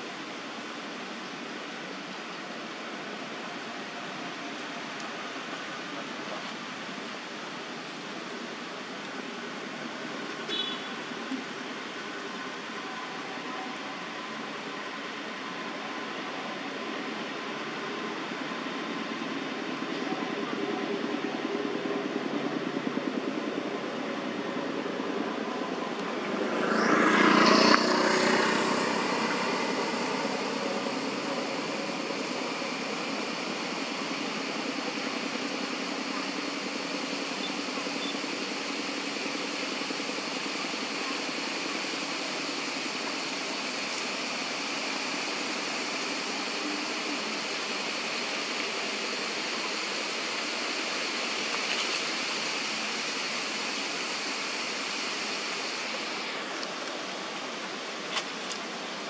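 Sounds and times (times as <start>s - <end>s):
outdoor background noise: 0.0s - 59.0s
vehicle passing: 26.1s - 32.2s.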